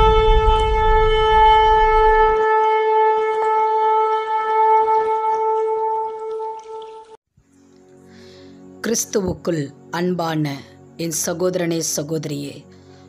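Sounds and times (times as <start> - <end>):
low rumble: 0.0 - 2.4
long horn-like note: 0.0 - 7.2.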